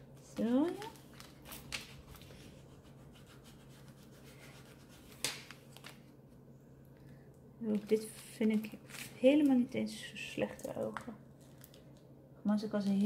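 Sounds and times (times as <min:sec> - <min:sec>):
sheet crackle: 0:00.3 - 0:06.1.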